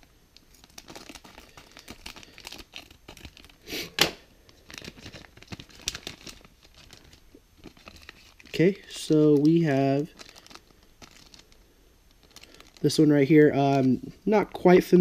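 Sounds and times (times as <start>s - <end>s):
foil bag crinkling: 0.0s - 3.7s, 4.4s - 14.8s.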